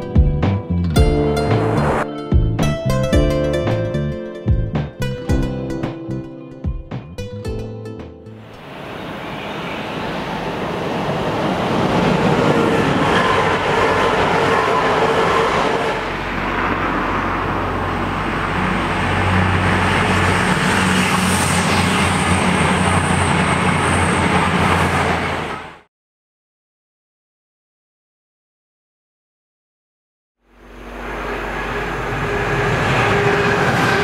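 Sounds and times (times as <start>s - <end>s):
train wheels and air rushing: 8.6s - 25.8s, 30.8s - 34.0s
low engine hum: 30.5s - 34.0s.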